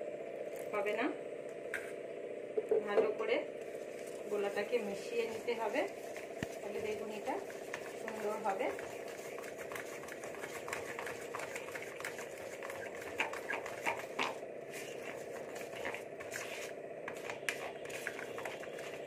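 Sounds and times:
steady background hum: 0.0 - 19.0
spatula stirring batter in bowl: 3.9 - 19.0.

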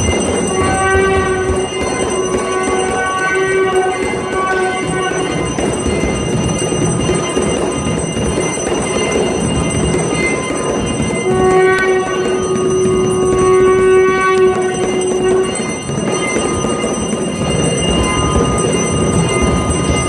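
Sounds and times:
conch shell blown: 0.0 - 5.9, 11.1 - 16.8
bells ringing and clanging: 0.0 - 20.0.

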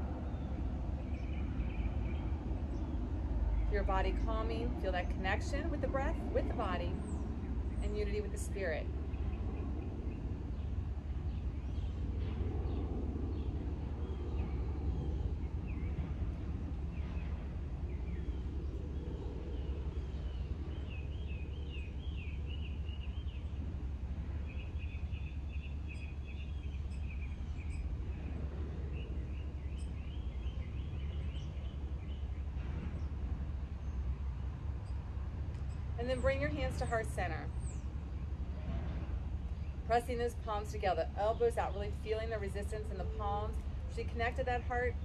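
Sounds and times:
birds chirping and trilling: 24.4 - 34.1.

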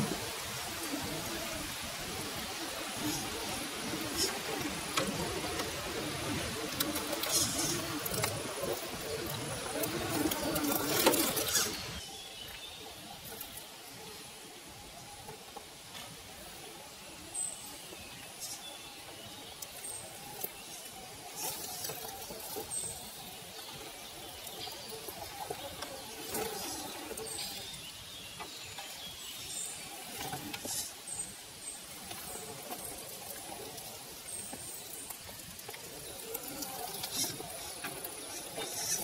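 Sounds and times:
small birds chirping: 0.3 - 39.0
small electric motor whining: 2.9 - 12.1.

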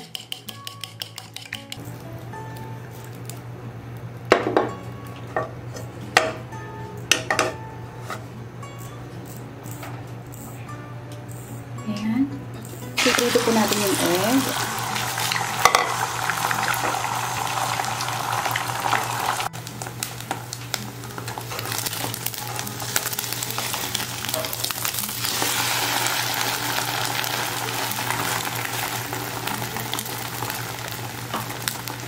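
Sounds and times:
eggs sizzling in oil: 13.0 - 32.0.

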